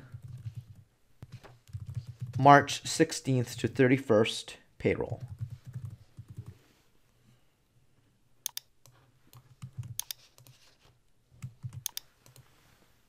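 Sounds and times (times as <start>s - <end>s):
computer mouse clicking: 8.4s - 10.6s, 11.4s - 12.4s.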